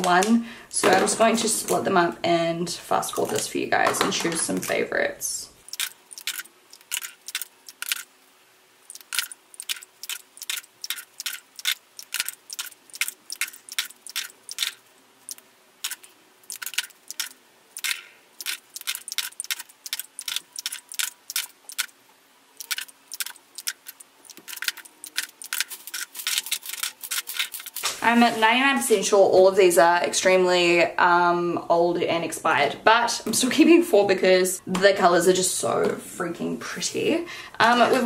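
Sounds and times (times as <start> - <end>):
plastic tubes clicking and clattering: 3.1 - 4.8, 5.7 - 8.1, 8.9 - 22.0, 22.6 - 28.2.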